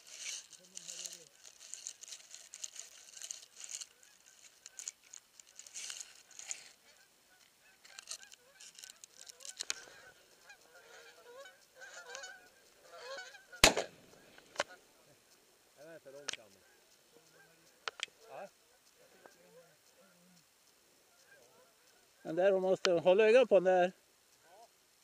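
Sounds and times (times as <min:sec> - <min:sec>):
grass rustling near microphone: 0:00.0 - 0:25.0
geese honking in flight: 0:06.9 - 0:14.8, 0:21.1 - 0:22.4.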